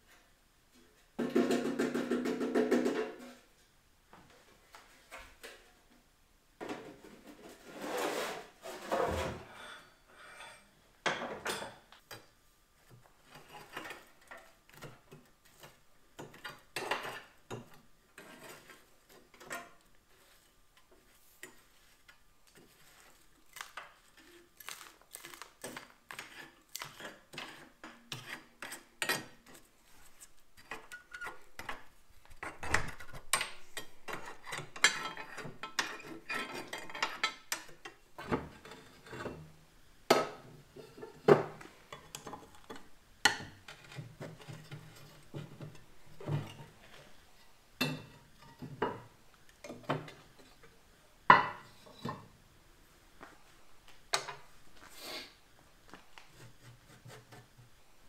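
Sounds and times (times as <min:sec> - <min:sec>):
tools scraping stove: 0:06.9 - 0:10.7, 0:13.2 - 0:21.6, 0:25.7 - 0:39.5.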